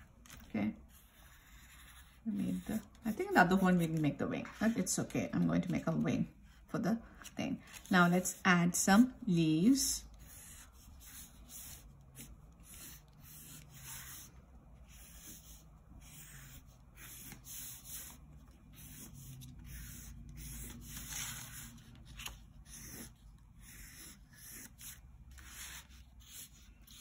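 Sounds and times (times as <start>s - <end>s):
pencil scratching on paper: 0.9s - 4.8s, 10.2s - 21.8s, 22.6s - 27.0s.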